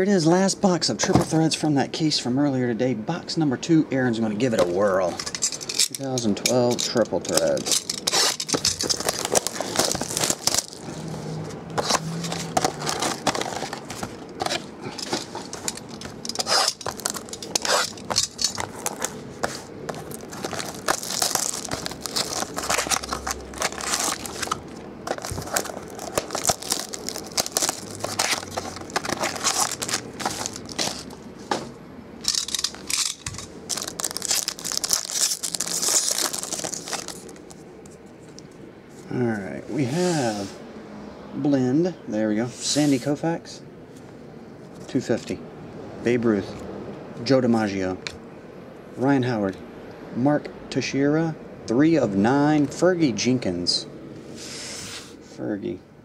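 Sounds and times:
foil and plastic wrap crinkling: 0:05.8 - 0:11.2, 0:11.8 - 0:31.6, 0:32.3 - 0:38.4
cardboard clicks and scrapes: 0:07.4 - 0:37.5.

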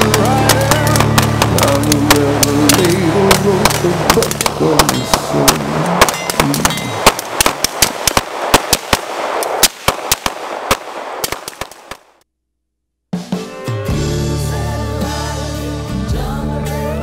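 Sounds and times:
music: 0:00.0 - 0:04.8, 0:13.1 - 0:17.0
firecrackers cracking: 0:00.0 - 0:12.2.

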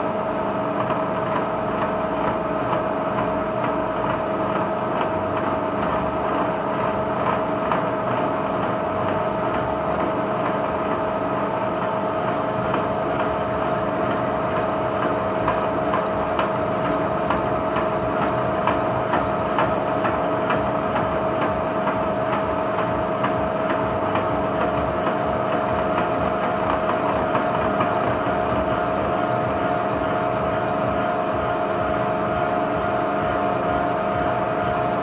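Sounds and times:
milling machine whine: 0:00.0 - 0:35.0
light ticking from cutter: 0:00.8 - 0:06.5, 0:11.8 - 0:30.5.

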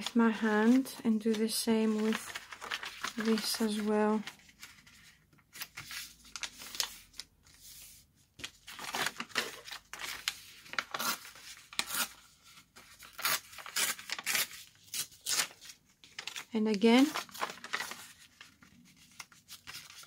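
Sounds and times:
paper tearing by hand: 0:08.8 - 0:12.2, 0:13.0 - 0:16.4.

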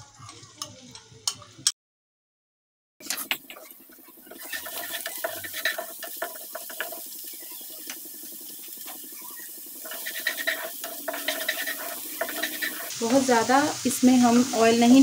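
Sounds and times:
wooden spatula scraping pan: 0:03.0 - 0:07.2, 0:09.8 - 0:13.2
garlic sizzling in hot oil: 0:03.0 - 0:15.0.

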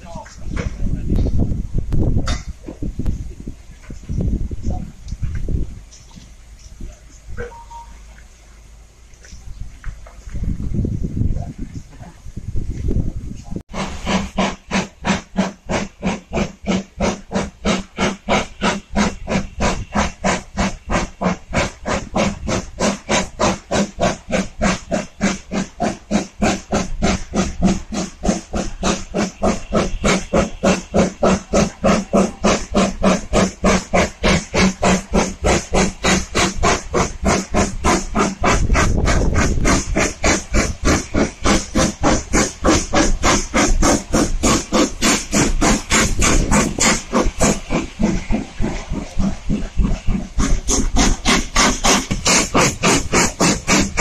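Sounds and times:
steam locomotive exhaust chuffing: 0:00.0 - 0:54.0
train rumble: 0:00.0 - 0:54.0.

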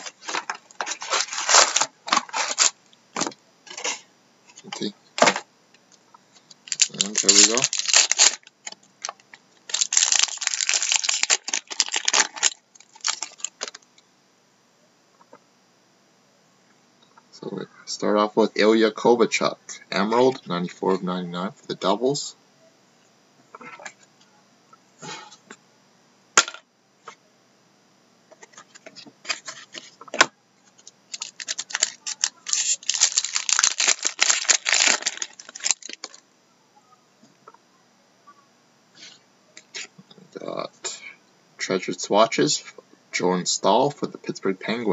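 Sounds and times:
foil wrapper crinkling: 0:00.0 - 0:03.9, 0:06.6 - 0:13.8, 0:30.7 - 0:36.2.

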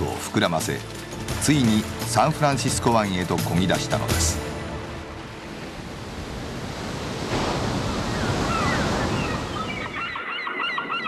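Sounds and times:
sea waves washing: 0:00.0 - 0:10.2
wind blowing: 0:04.4 - 0:11.0
birds calling: 0:05.2 - 0:11.0.

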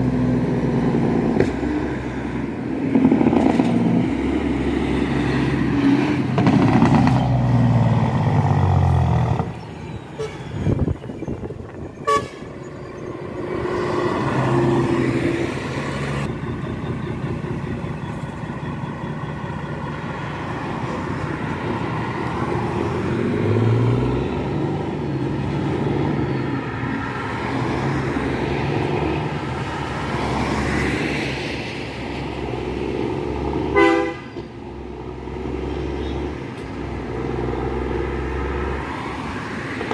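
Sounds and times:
car and truck traffic: 0:00.0 - 0:39.9
truck diesel engine passing: 0:00.0 - 0:39.9
vehicle horn short beeps: 0:12.0 - 0:12.5, 0:33.8 - 0:34.4.

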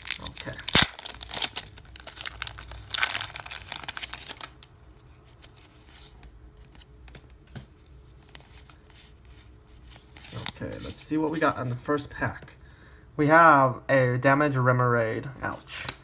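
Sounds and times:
plastic wrapper crinkling: 0:00.0 - 0:05.6.

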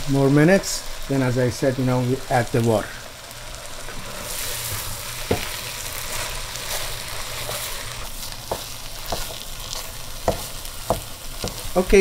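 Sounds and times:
food sizzling in a pot: 0:00.0 - 0:12.0
wooden spoon knocking on pot: 0:08.5 - 0:09.4, 0:10.2 - 0:11.8.

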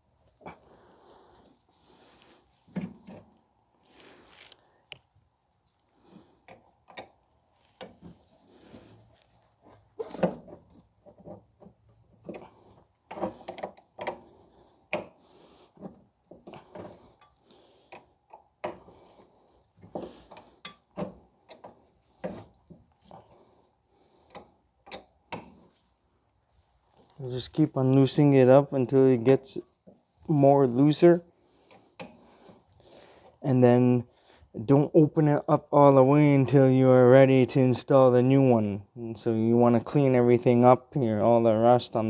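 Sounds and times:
wrench metal clicks and knocks: 0:24.3 - 0:25.6.

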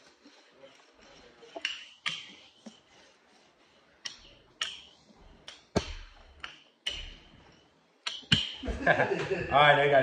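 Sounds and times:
wooden rolling pin clacking: 0:01.0 - 0:03.0, 0:03.9 - 0:08.7.

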